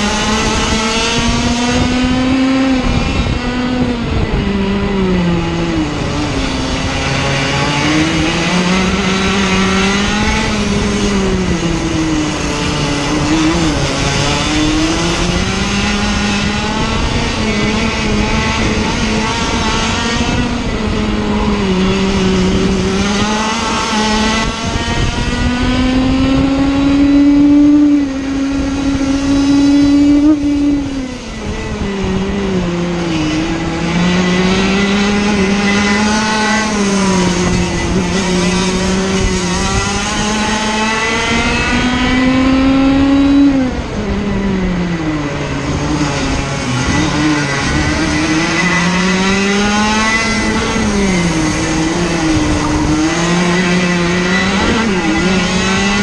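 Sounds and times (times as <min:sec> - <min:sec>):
kart engine racing: 0:00.0 - 0:56.0.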